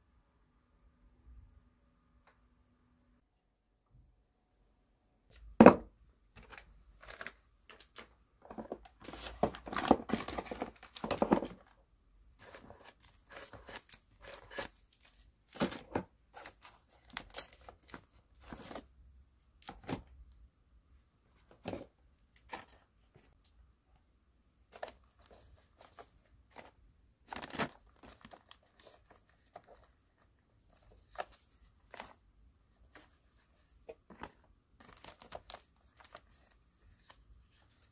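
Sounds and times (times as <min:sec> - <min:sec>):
paper and plastic rustling: 0:06.4 - 0:11.8, 0:12.4 - 0:18.9, 0:24.7 - 0:32.2, 0:32.8 - 0:37.9.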